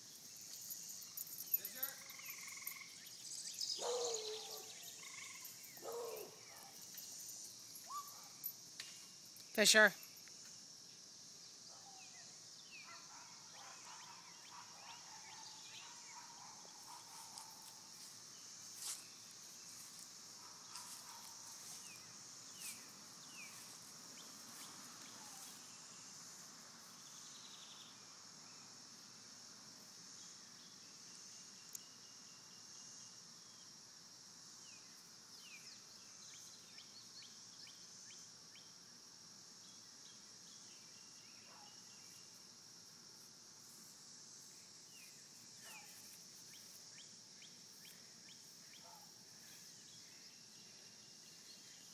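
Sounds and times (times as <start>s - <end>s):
high-pitched insect drone: 0.0s - 12.7s.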